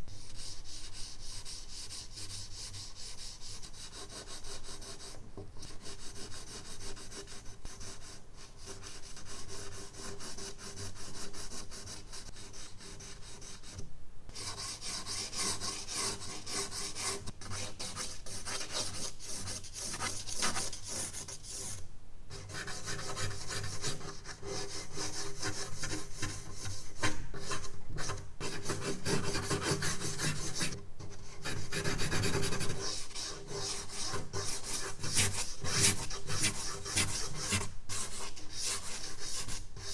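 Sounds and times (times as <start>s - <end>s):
charcoal scratching on paper: 0.1s - 13.8s, 22.4s - 39.9s.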